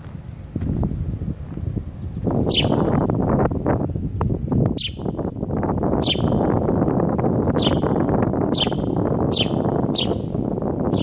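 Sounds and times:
loud steady rushing noise: 0.0 - 11.0
bird giving sharp downward calls: 2.5 - 2.9, 4.8 - 5.1, 6.0 - 6.4, 7.6 - 11.0.

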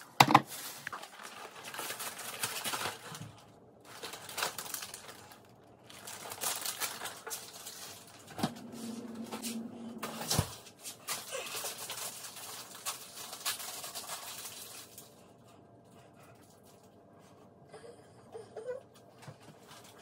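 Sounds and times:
packaging rustling and crinkling: 0.0 - 15.3
steady low hum: 5.0 - 12.6.

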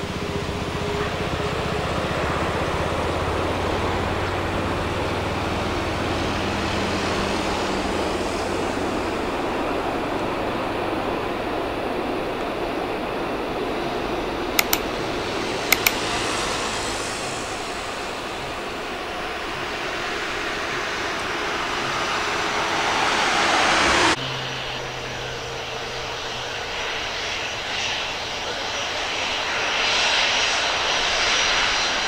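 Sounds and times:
jet engines humming: 0.0 - 32.0
jet engines rushing: 0.0 - 32.0
sharp double ticks: 14.6 - 15.0, 15.6 - 16.4.

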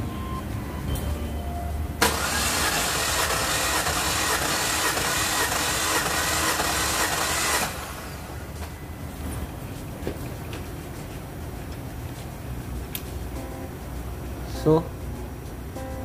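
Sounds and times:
car engine cranking: 2.0 - 10.5.

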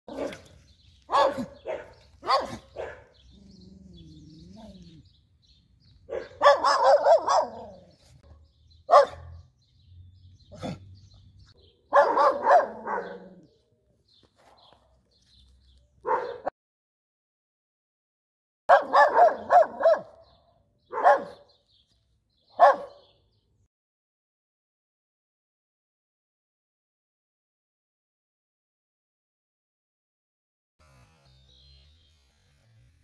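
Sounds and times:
dog barking: 0.1 - 0.5, 1.1 - 3.2, 6.1 - 7.9, 8.9 - 9.4, 11.9 - 13.5, 16.0 - 16.5, 18.7 - 20.3, 20.9 - 21.5, 22.5 - 23.1.

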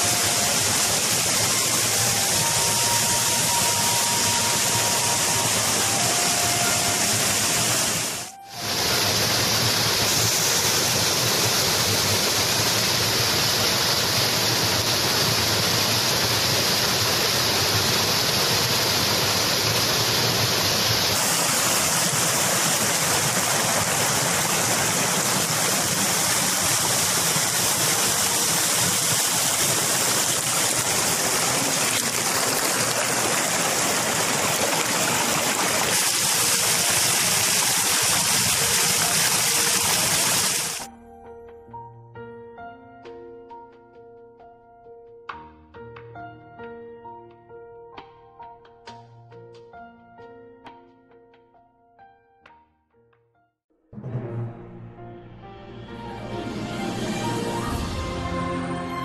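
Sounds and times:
water rushing down cascade: 0.0 - 40.9.

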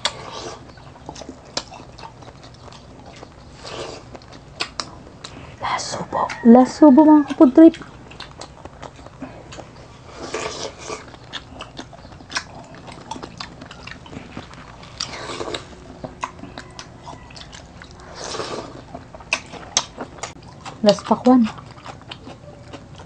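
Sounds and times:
wet chewing and lip smacks: 0.0 - 6.4, 7.0 - 23.0
loud bites and slurps: 17.9 - 20.0.

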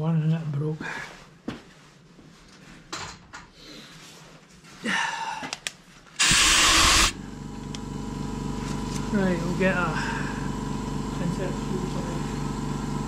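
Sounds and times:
steady machine hum: 6.2 - 13.0.

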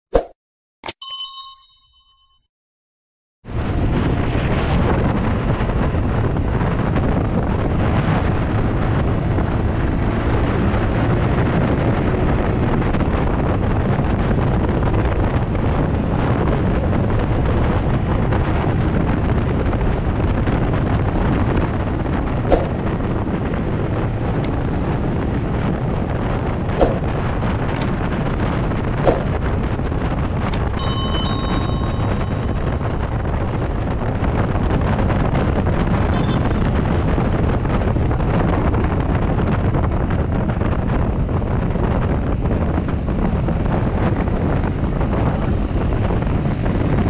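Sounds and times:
short bell chime: 0.9 - 2.5, 30.8 - 33.2
wind rushing on microphone: 3.5 - 47.0
click: 30.4 - 30.6.

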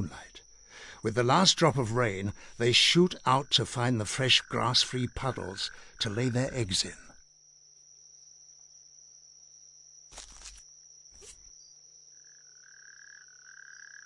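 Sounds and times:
distant toad trilling call: 2.0 - 7.2, 10.1 - 14.0
brief rustles: 10.1 - 11.5.

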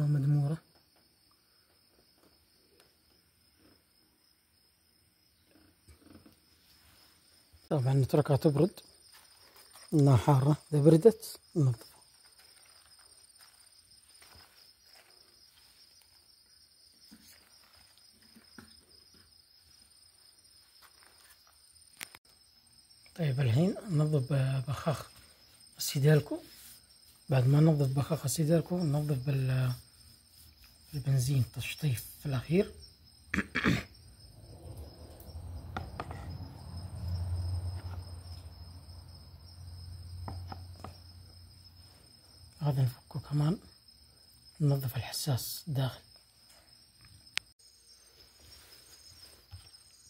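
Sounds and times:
crickets trilling: 0.0 - 50.0
soft knocks on concrete: 35.7 - 36.5, 40.2 - 41.0.

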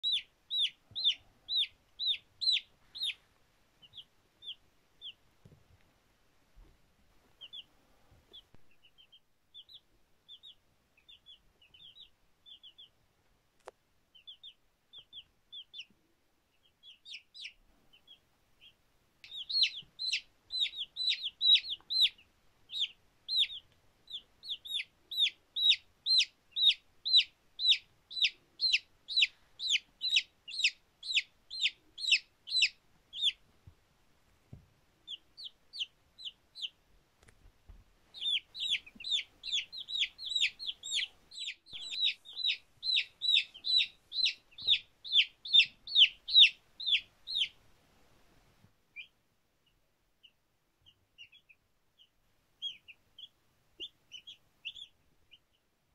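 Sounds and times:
chicks peeping: 0.0 - 5.8, 6.6 - 33.8, 34.5 - 47.7, 48.9 - 55.7.

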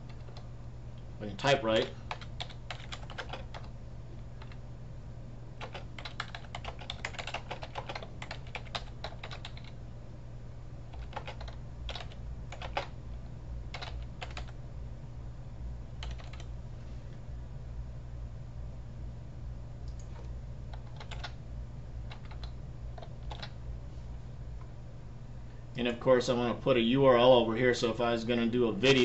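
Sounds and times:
computer keyboard typing: 0.0 - 0.5, 1.8 - 3.7, 4.3 - 4.6, 5.6 - 9.8, 10.9 - 13.0, 13.7 - 14.6, 16.0 - 16.5, 19.9 - 21.4, 22.1 - 23.6.

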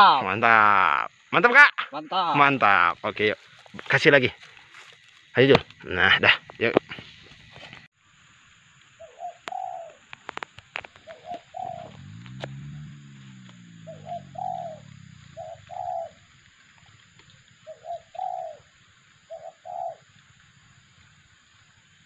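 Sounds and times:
doves cooing: 9.0 - 22.0.

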